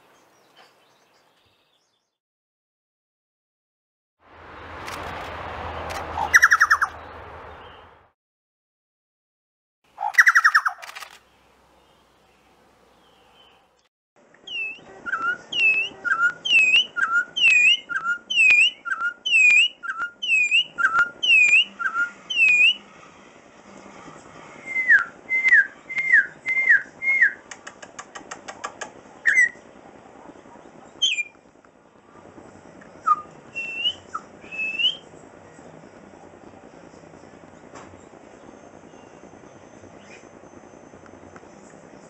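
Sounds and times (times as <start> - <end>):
bird whistling song: 6.2 - 7.0, 10.0 - 11.0, 14.4 - 22.8, 24.6 - 27.6, 29.2 - 29.6, 31.0 - 31.4, 32.9 - 35.1, 38.5 - 41.6
bird clicks: 27.5 - 29.0.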